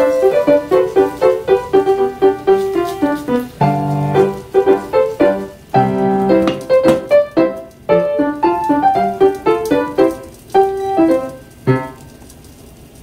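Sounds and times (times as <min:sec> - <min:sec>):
piano music: 0:00.0 - 0:12.4.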